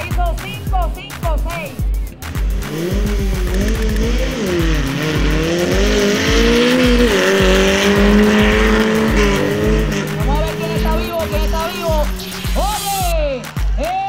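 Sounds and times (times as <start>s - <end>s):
music with kick-drum beat: 0.0s - 14.0s
racing engines accelerating: 1.4s - 13.9s.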